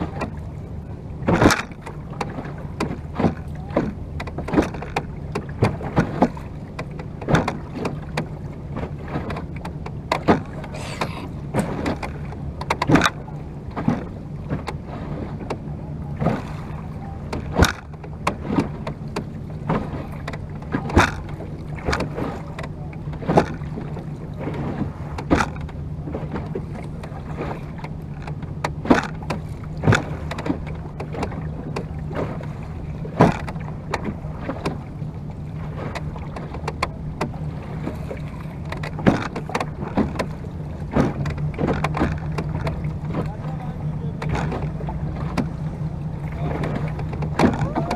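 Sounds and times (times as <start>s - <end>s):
low steady hum: 0.0s - 47.9s
water wash: 0.0s - 47.9s
oars knocking in wooden oarlocks: 35.9s - 43.5s, 44.1s - 45.6s, 46.2s - 47.9s.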